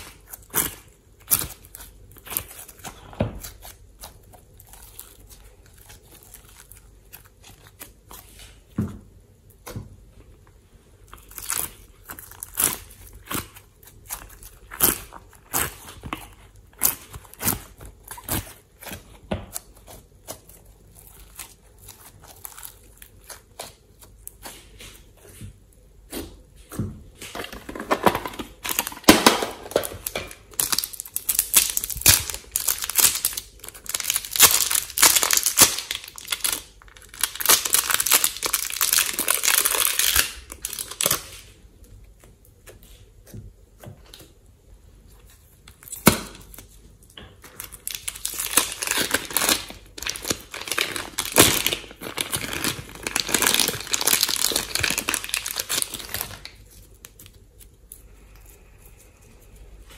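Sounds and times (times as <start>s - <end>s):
plastic bag crinkling: 27.2s - 41.5s, 47.4s - 58.6s.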